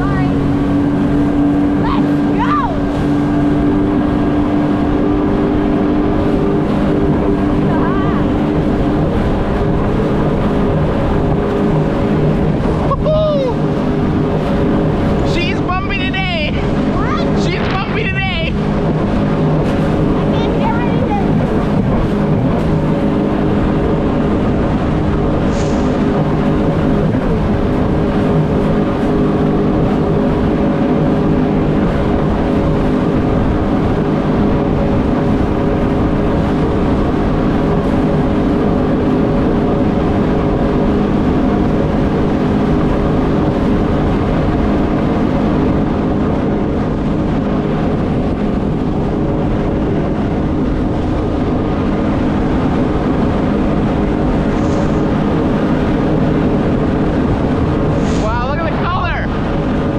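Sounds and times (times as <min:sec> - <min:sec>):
jet ski engine running: 0:00.0 - 0:59.9
water rushing: 0:00.0 - 0:59.9.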